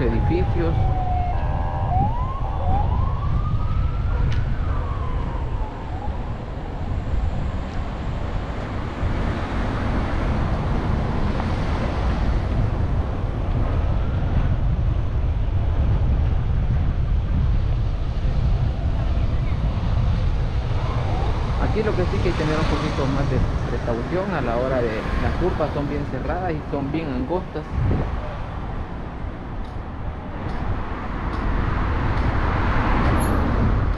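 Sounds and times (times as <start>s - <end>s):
siren wailing: 0.0s - 8.3s
road and wind noise from car: 0.0s - 33.9s.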